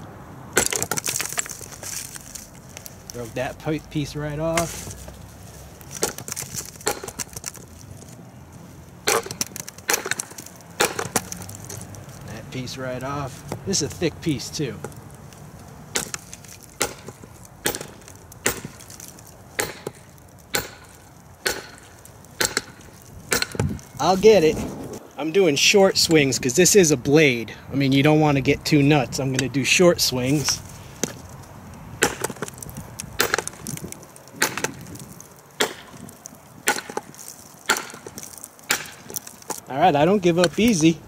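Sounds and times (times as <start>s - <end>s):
knife hammering cinder block: 0.6s - 1.1s, 6.0s - 7.3s, 9.1s - 11.3s, 15.9s - 18.9s, 19.6s - 23.8s, 32.0s - 32.5s, 33.2s - 33.6s, 34.4s - 34.8s, 35.6s - 36.0s, 36.6s - 37.1s, 37.7s - 39.2s.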